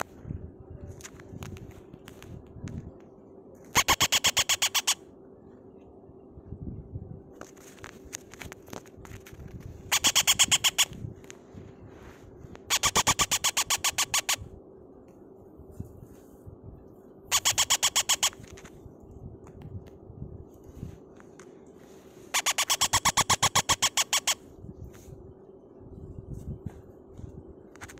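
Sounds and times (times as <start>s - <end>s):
parrot chick cheeping: 9.9s - 10.9s, 17.3s - 18.4s, 22.4s - 24.4s.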